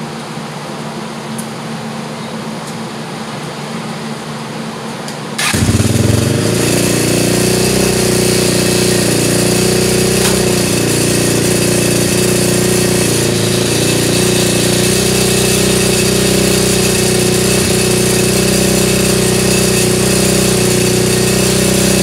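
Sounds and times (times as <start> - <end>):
four-stroke engine running: 5.4 - 22.0.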